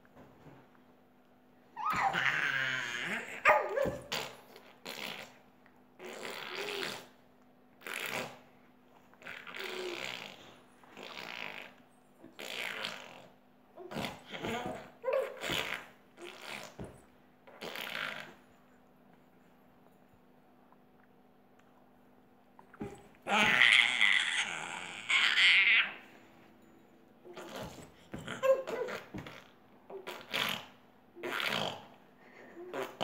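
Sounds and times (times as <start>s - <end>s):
faint steady hum: 0.0s - 33.0s
baby babbling and squealing: 1.8s - 4.1s, 22.8s - 26.0s, 27.3s - 29.3s.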